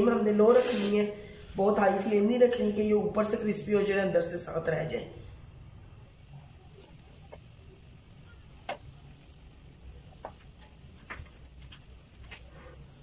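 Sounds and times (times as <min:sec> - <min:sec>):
potato slices sizzling in oil: 0:05.9 - 0:13.0.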